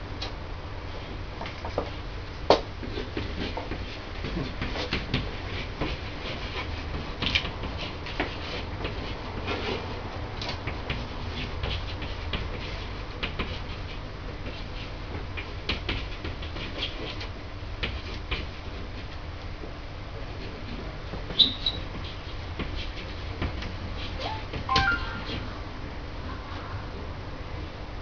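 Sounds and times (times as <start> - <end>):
marker pen squeaking on wall: 21.3 - 22.2.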